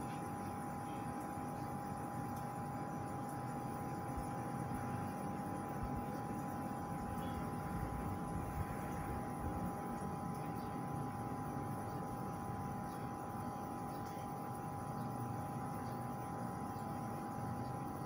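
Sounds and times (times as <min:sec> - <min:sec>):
constant high hum: 0:00.0 - 0:18.0.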